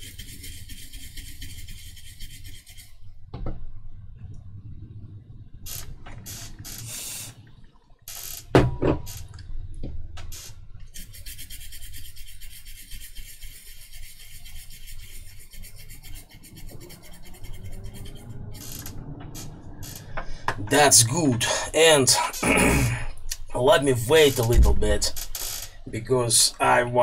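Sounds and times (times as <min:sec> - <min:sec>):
brush scrubbing circuit board: 0:00.0 - 0:03.0, 0:11.0 - 0:18.8.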